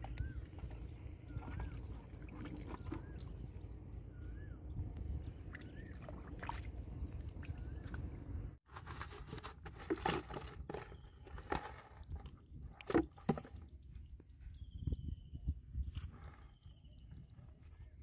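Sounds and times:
feet sloshing through muddy water: 0.0s - 4.2s, 5.2s - 8.5s.

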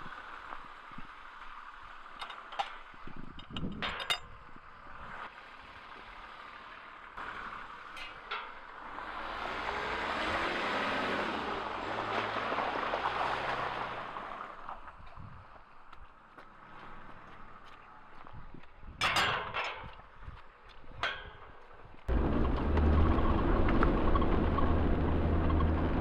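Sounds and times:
tyres on wet track: 0.0s - 26.0s
metal gate latch clinks: 2.2s - 2.8s, 3.4s - 4.3s, 19.0s - 19.9s, 21.0s - 21.6s
diesel engine driving past: 8.7s - 14.6s, 22.1s - 26.0s.

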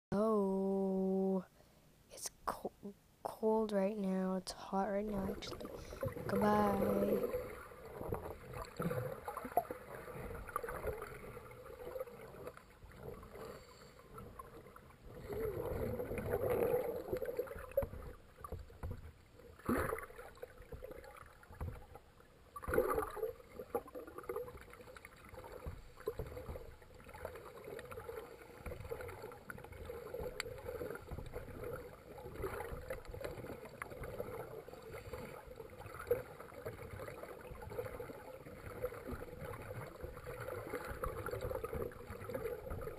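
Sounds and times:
steady underwater hum: 0.1s - 42.9s
regulator breathing bubbles: 5.4s - 7.4s.

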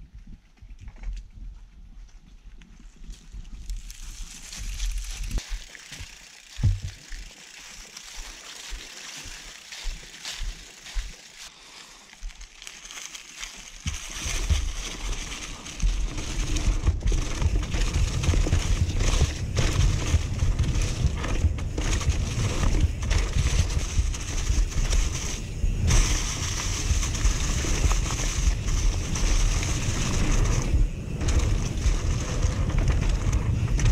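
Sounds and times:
bike tyres rolling over leaves: 1.5s - 33.9s
leaves crackling: 3.2s - 33.9s
wind buffeting microphone: 15.8s - 33.9s.

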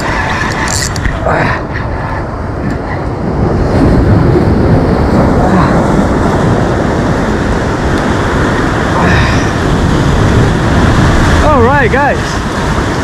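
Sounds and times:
surf washing against concrete: 0.0s - 13.0s.

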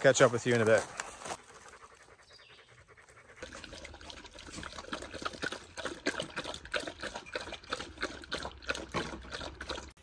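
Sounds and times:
water splashing and trickling: 3.4s - 10.0s.

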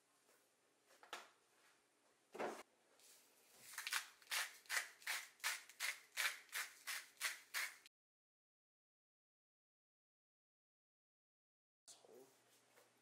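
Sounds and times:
spice shaker swish: 3.6s - 7.9s
spice shaker rattling: 3.8s - 7.8s.

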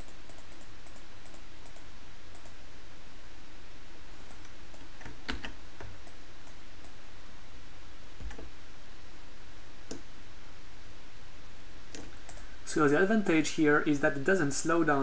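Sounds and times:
computer mouse clicks: 0.0s - 2.6s, 11.9s - 12.5s
low hum and hiss: 0.0s - 15.0s.

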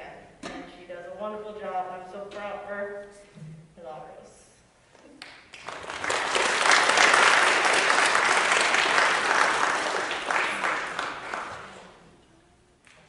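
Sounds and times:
audience clapping: 5.2s - 12.0s.

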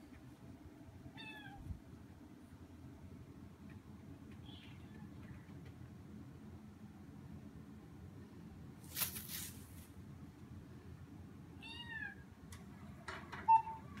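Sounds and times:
kitten meowing: 1.2s - 1.6s, 11.6s - 12.2s
scratchy rustle: 8.8s - 9.9s.

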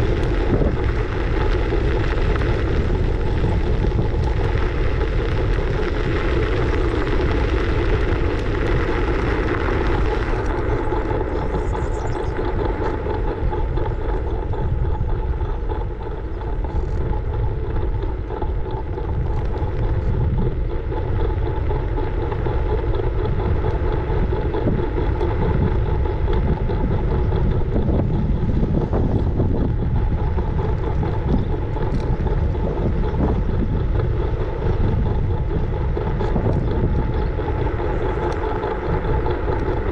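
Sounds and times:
constant thin whine: 0.0s - 39.9s
road rumble from wheels: 0.0s - 39.9s
wind rushing over microphone: 0.0s - 39.9s.

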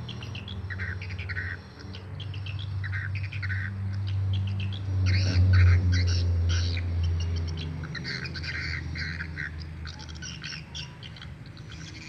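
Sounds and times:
swiftlets twittering chirps: 0.0s - 12.0s.

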